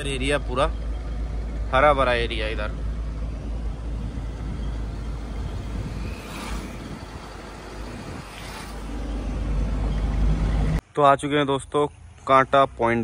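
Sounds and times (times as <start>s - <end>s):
road noise: 0.0s - 13.0s
truck engine rumbling: 0.0s - 13.0s.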